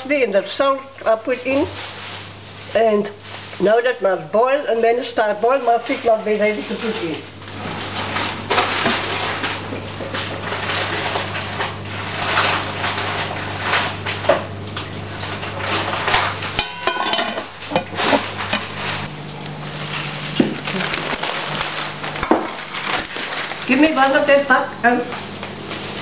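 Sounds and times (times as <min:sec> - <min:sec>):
steady low hum: 0:00.0 - 0:26.0
pots and utensils clattering: 0:15.2 - 0:19.1.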